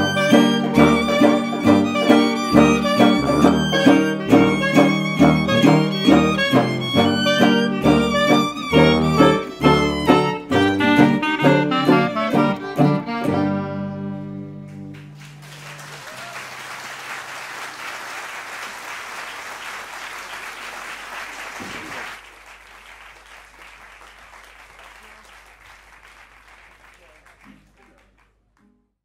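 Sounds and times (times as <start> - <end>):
audience applauding: 0.0 - 10.0, 14.7 - 28.4
tuba low note ringing: 0.0 - 12.3
hot jazz band playing: 0.0 - 15.2.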